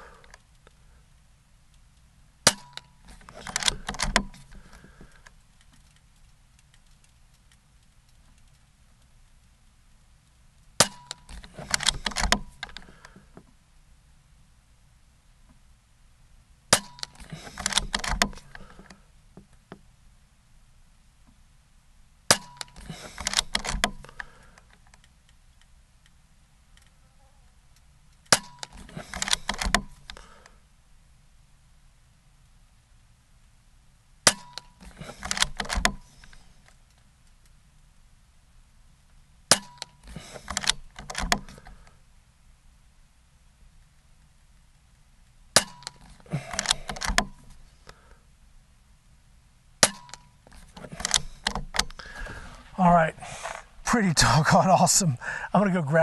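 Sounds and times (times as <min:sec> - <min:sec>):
rifle lever action clicks: 0:01.7 - 0:09.5, 0:10.8 - 0:13.2, 0:16.8 - 0:19.0, 0:22.3 - 0:25.7, 0:27.8 - 0:30.2, 0:34.2 - 0:37.6, 0:39.5 - 0:41.8, 0:45.6 - 0:47.5, 0:49.8 - 0:52.0
side lever clicks: 0:45.6 - 0:47.4, 0:49.8 - 0:52.0.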